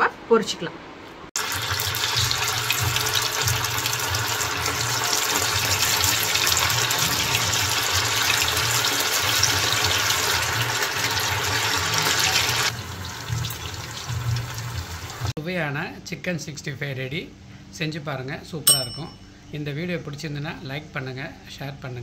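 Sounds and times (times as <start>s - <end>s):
chicken deep-frying in hot oil: 1.4s - 15.4s.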